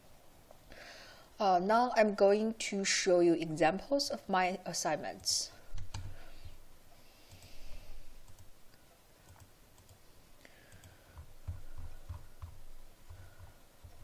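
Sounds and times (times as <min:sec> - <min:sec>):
computer mouse clicks: 0:07.2 - 0:10.0, 0:10.6 - 0:14.0.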